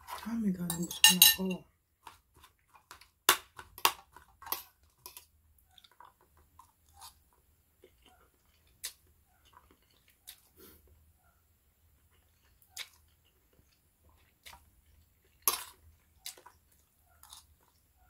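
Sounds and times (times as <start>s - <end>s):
wet chewing of noodles: 4.0s - 18.0s.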